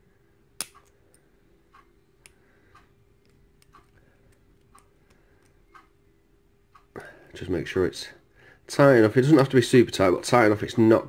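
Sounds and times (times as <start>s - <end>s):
faint steady hum: 0.0s - 11.0s
faint regular ticking: 0.6s - 7.7s.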